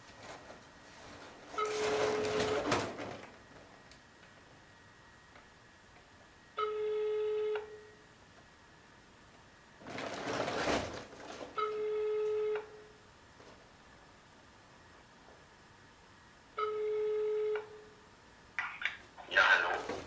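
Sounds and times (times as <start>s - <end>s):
telephone ringback beeps: 6.6s - 8.0s, 11.6s - 12.9s, 16.6s - 17.9s
plastic bag rustling: 9.8s - 11.6s.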